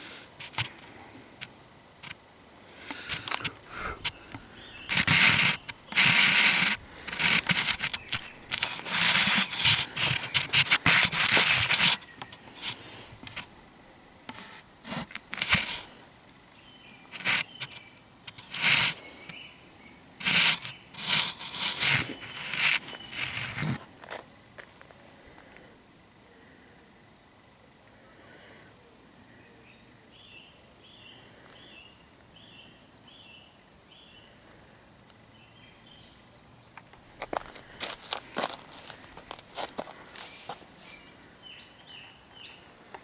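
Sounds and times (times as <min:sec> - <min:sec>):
rubbing and scraping on microphone: 0:02.8 - 0:13.5, 0:14.3 - 0:16.0, 0:17.1 - 0:19.1, 0:20.2 - 0:24.7, 0:37.0 - 0:41.1.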